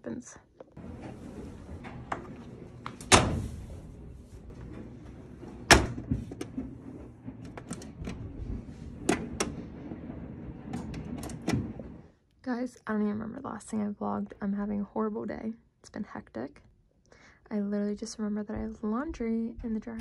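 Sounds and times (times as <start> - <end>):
washer lid clunks: 2.9 - 3.6, 5.6 - 6.6.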